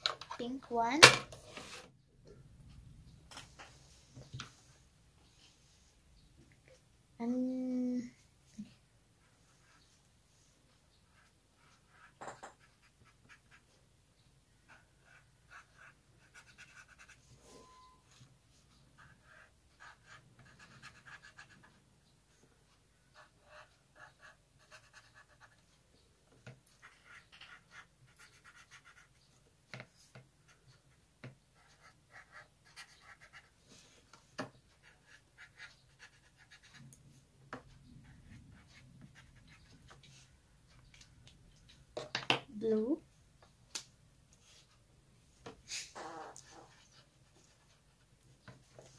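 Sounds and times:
marker drawing on paper: 11.0s - 13.8s, 14.7s - 25.8s, 26.6s - 40.8s, 45.6s - 48.9s.

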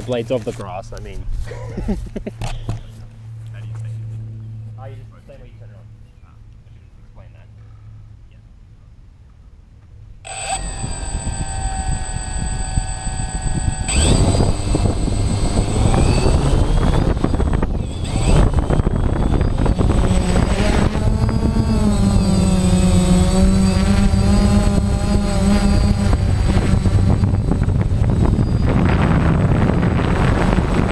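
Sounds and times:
drone propellers whining: 10.2s - 30.9s.

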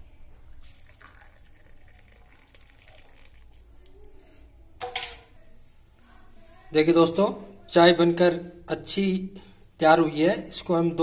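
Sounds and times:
tea trickling through a strainer: 0.0s - 4.2s.

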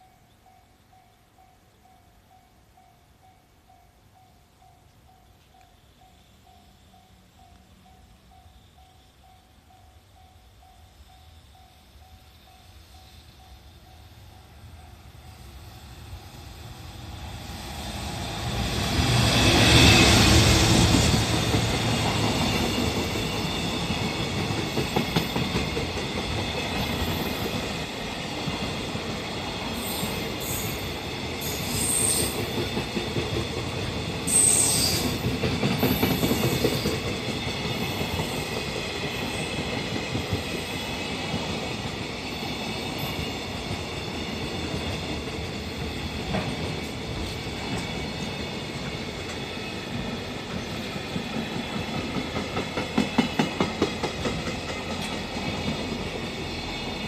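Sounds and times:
electric locomotive passing: 0.0s - 57.0s
high wheel squeals: 34.3s - 35.2s.

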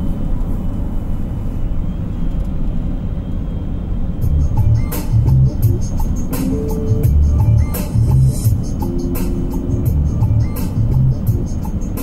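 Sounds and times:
road and engine rumble: 0.0s - 12.0s
bass notes of music: 4.2s - 12.0s.

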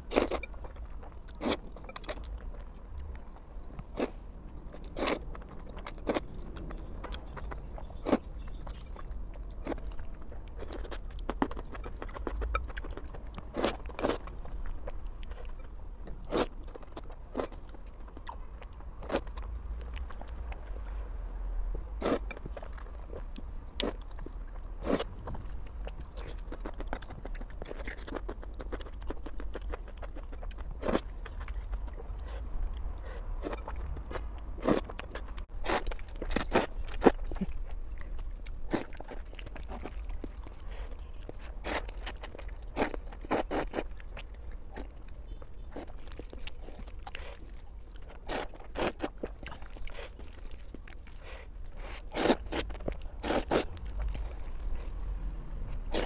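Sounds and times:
low steady hum: 0.0s - 56.0s
person slurping and chewing noodles: 0.0s - 56.0s.

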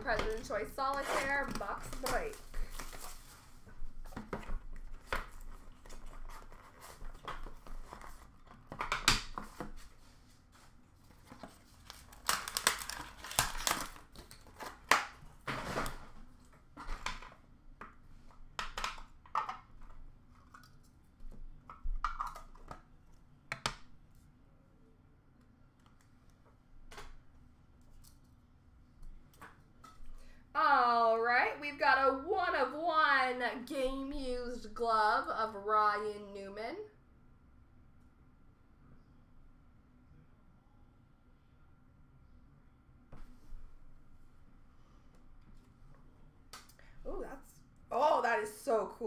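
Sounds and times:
cardboard rustling: 0.1s - 8.8s
plastic wrapping crinkling and tearing: 11.2s - 15.1s.

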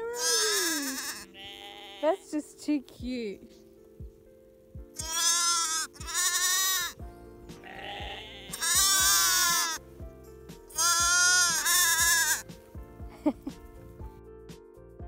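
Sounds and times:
lambs bleating: 0.0s - 2.3s, 5.0s - 9.8s, 10.7s - 12.5s
background music with steady beat: 0.0s - 15.0s.

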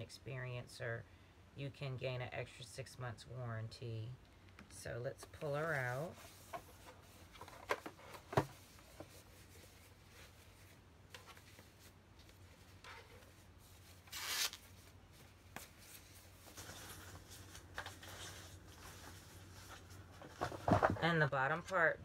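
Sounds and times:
packaging tearing: 14.1s - 14.8s.

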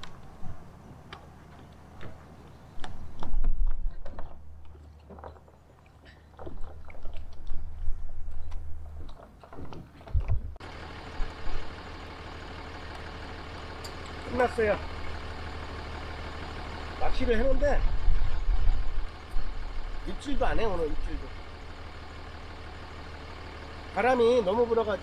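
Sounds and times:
light knocks and crunches: 0.0s - 10.6s
wind rumbling on microphone: 2.8s - 4.6s, 6.5s - 10.6s, 17.4s - 20.0s
steady low hum: 10.3s - 25.0s.

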